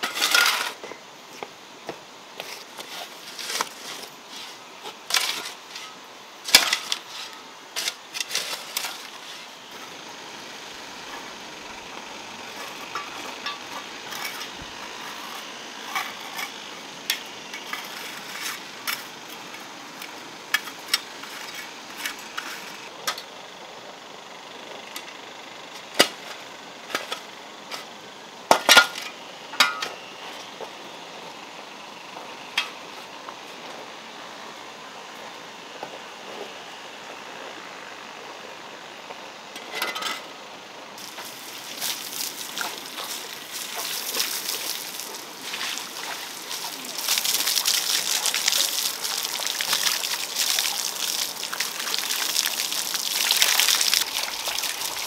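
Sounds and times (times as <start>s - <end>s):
metal tools scraping wet gravel: 0.0s - 0.9s, 2.4s - 10.1s, 11.0s - 23.2s, 28.5s - 30.0s, 41.0s - 55.0s.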